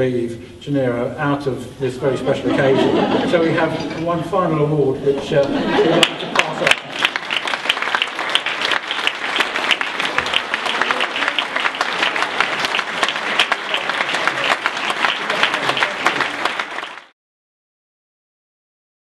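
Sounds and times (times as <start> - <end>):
audience applauding: 5.7 - 17.2.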